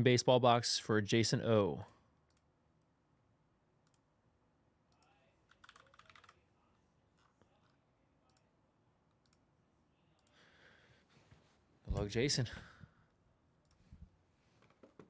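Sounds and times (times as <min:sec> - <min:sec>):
faint clicks: 0:09.1 - 0:09.4.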